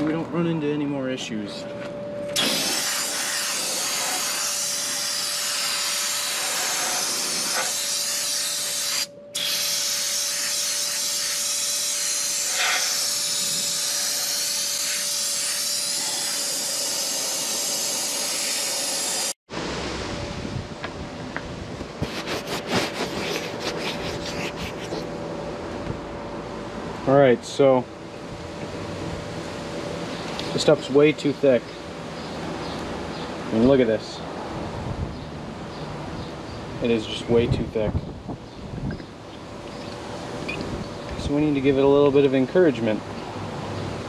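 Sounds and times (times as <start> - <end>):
air spray wand hissing: 2.4 - 19.3.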